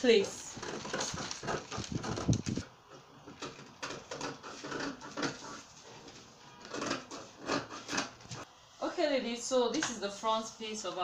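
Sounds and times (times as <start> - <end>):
paper rustling: 0.0 - 2.7.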